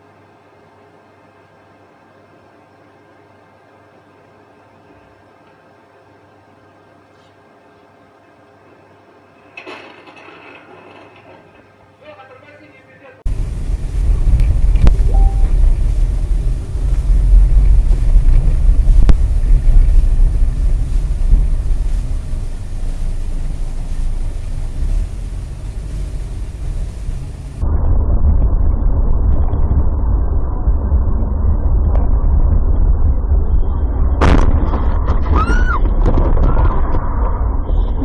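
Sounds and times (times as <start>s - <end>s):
car driving rumble: 13.3s - 38.0s.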